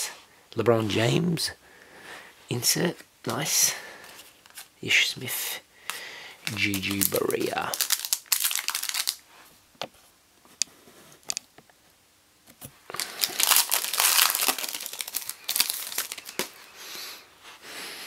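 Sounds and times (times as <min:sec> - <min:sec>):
wrapper tearing: 0:06.4 - 0:09.2, 0:12.9 - 0:16.6
wrapper crinkling: 0:06.4 - 0:09.3, 0:12.9 - 0:16.7.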